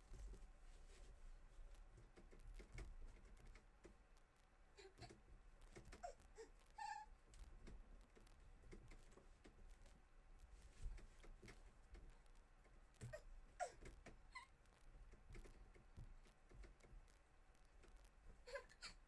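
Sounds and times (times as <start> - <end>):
soft knocks and creaks: 4.8 - 19.0.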